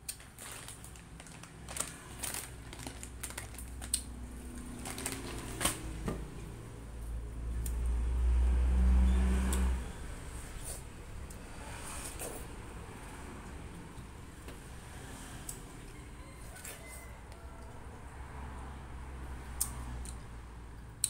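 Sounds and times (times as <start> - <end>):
watermelon being handled and broken: 0.0 - 6.3.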